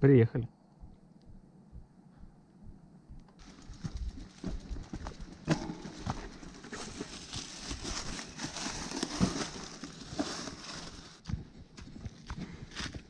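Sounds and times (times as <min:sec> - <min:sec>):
bike knocking and rattling: 0:03.3 - 0:12.3
tyres crunching through dry leaves: 0:03.4 - 0:11.3.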